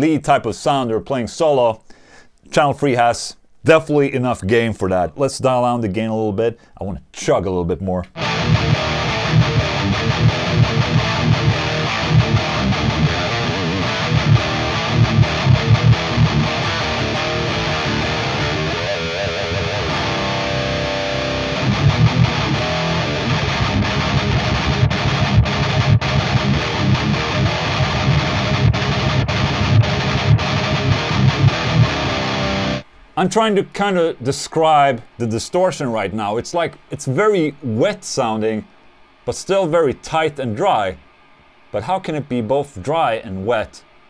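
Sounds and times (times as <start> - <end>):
distorted electric guitar chugging riffs: 8.1 - 33.4.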